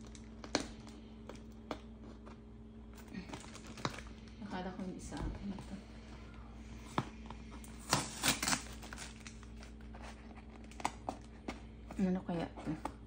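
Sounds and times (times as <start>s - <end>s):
cardboard tape tearing: 7.7s - 11.3s.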